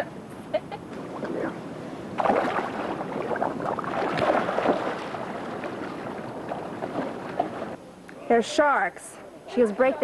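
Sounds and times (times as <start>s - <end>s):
water splashing and sloshing: 0.9s - 7.8s.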